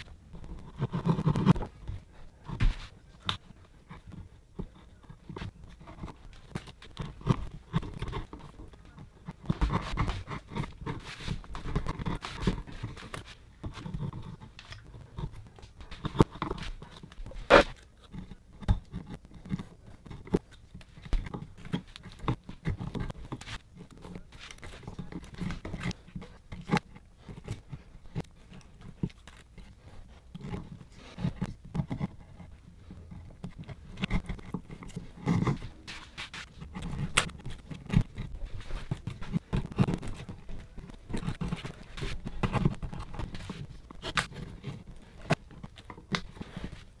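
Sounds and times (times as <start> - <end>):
screwdriver scraping wood: 0.0 - 47.0.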